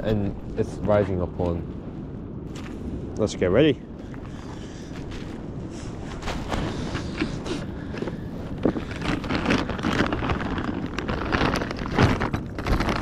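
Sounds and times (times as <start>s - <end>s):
wind on microphone: 0.0s - 13.0s
rustling and crinkling bags: 4.1s - 13.0s.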